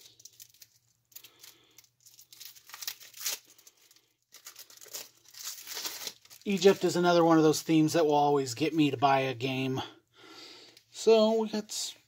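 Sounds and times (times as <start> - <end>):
plastic wrap crinkling: 0.0 - 7.9.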